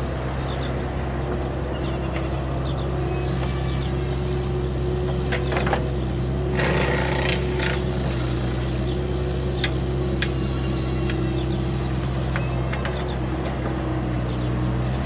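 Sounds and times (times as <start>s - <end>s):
motor running steadily: 0.0s - 15.0s
knocks and clatters: 5.1s - 6.0s, 12.3s - 13.9s.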